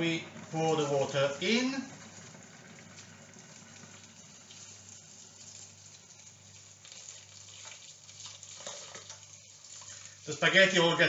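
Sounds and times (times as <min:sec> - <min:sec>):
water pouring into saucepan: 0:00.0 - 0:11.0.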